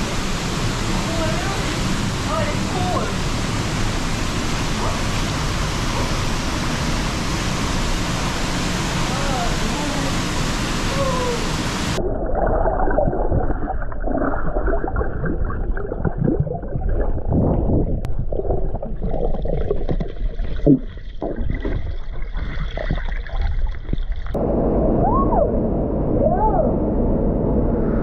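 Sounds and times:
water splashing: 0.0s - 24.4s
underwater gurgling and bubbling: 11.3s - 24.4s.

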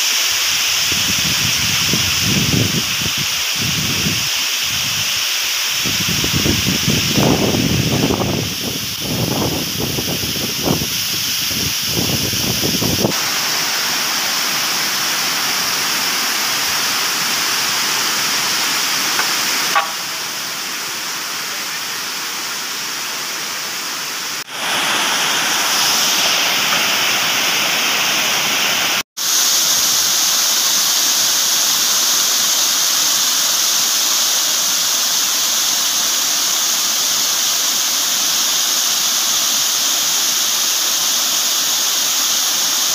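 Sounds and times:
waterfall rushing: 0.0s - 42.9s
wind on microphone: 0.6s - 13.2s.

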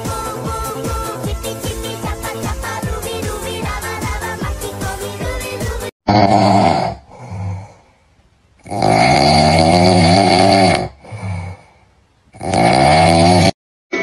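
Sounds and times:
loud snoring: 6.1s - 7.8s, 8.6s - 11.7s, 12.4s - 13.6s
quiet breath in: 11.0s - 12.1s.

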